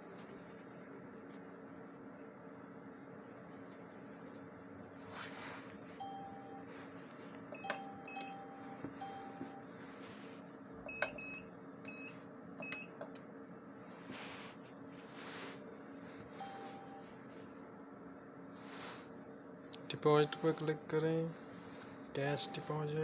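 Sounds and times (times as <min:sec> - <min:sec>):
machine low hum: 0:00.0 - 0:23.0
soft low beeps: 0:06.0 - 0:06.7, 0:07.5 - 0:09.7, 0:16.3 - 0:17.3, 0:20.0 - 0:21.0, 0:22.2 - 0:23.0
keypad clicks with beeps: 0:07.5 - 0:09.6, 0:10.9 - 0:13.2.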